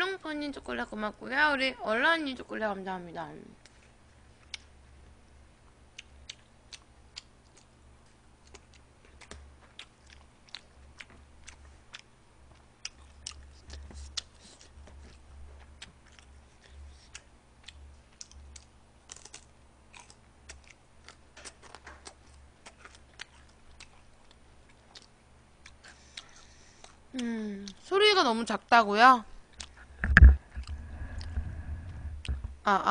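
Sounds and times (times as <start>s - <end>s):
steady low hum: 0.0s - 32.9s
person chewing crunchy food: 5.9s - 27.9s, 29.5s - 31.4s.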